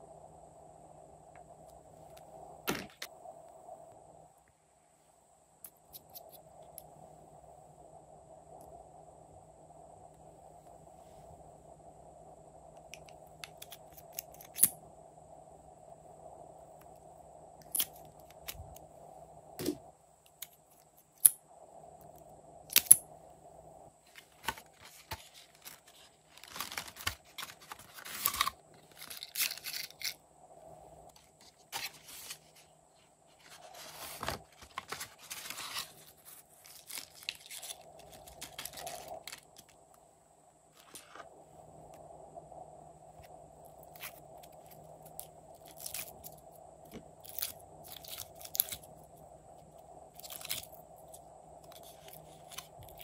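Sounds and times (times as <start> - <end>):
faint steady hum: 0.0 - 53.0
plastic and paper rustling: 24.1 - 30.2, 31.1 - 32.7, 33.3 - 39.7.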